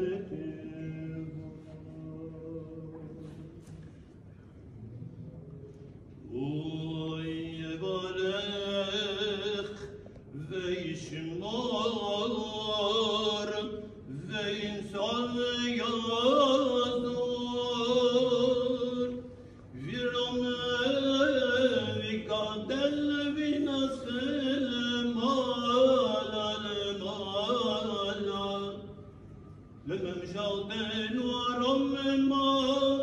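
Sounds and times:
man chanting a prayer: 0:06.3 - 0:29.0, 0:29.8 - 0:33.0.

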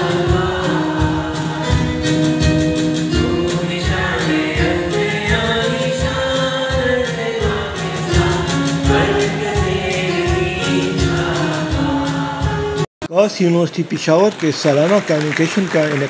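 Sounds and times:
steady low drum beat: 0:00.0 - 0:12.8
choir singing long notes: 0:00.0 - 0:12.9.

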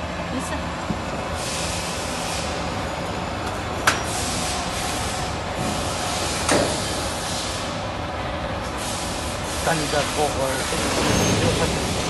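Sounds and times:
machine rollers forming sheet metal: 0:08.6 - 0:12.0.

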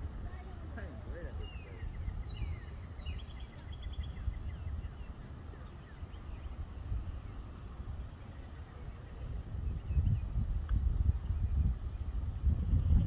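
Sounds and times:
faint high bird chirps: 0:00.2 - 0:10.5.

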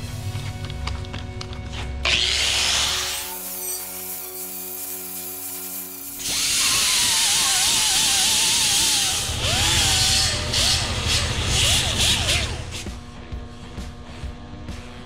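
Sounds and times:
air grinder whining on metal: 0:02.0 - 0:13.0.

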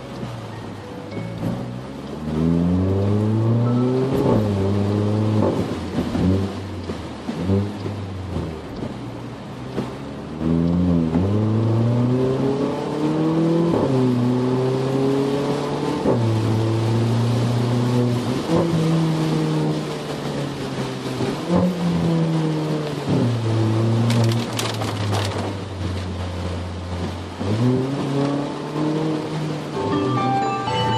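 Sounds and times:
car engine accelerating: 0:00.0 - 0:30.9.

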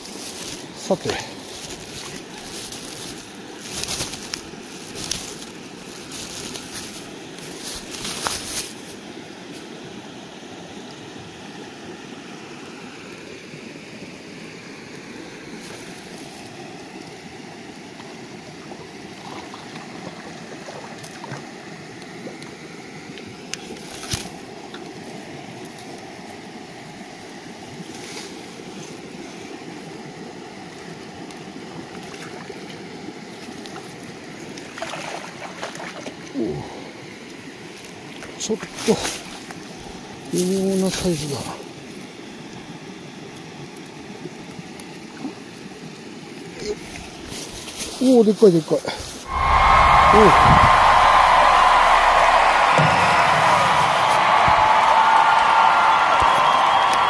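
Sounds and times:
river water rushing: 0:00.0 - 0:21.9, 0:49.2 - 0:57.0
handling rustles and knocks: 0:01.4 - 0:08.9.

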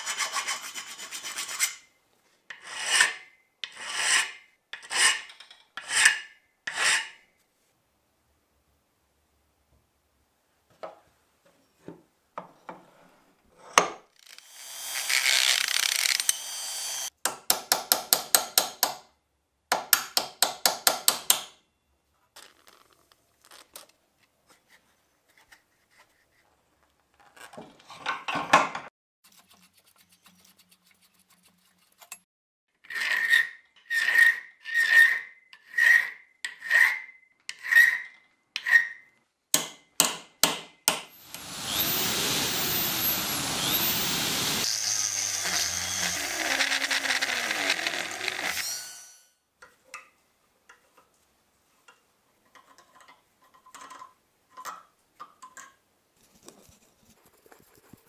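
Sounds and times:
rasping strokes: 0:29.2 - 0:32.2, 0:41.1 - 0:49.3.

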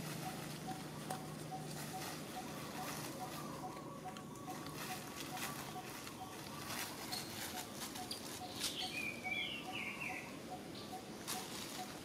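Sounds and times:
monkeys scuffling on dry leaves: 0:00.0 - 0:09.3, 0:11.1 - 0:12.0.

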